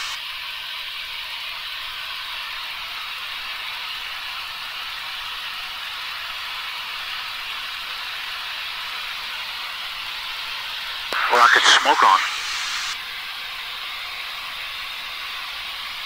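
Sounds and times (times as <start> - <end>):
cockpit noise hiss over intercom: 11.2 - 13.0.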